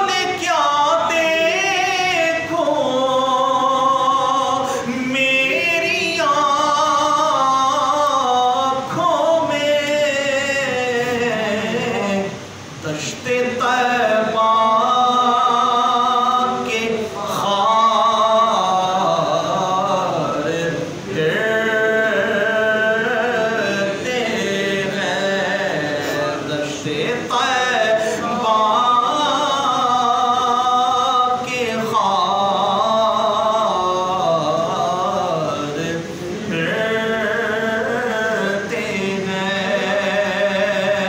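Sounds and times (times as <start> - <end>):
man singing unaccompanied: 0.0 - 41.0.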